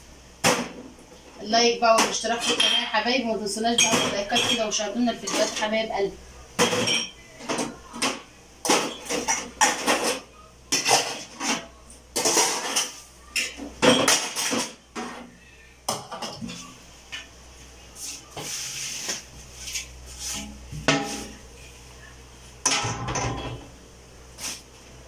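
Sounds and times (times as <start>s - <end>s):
metal dishes clattering into sink: 3.7s - 5.7s, 6.6s - 15.3s, 20.8s - 21.3s, 22.6s - 23.7s.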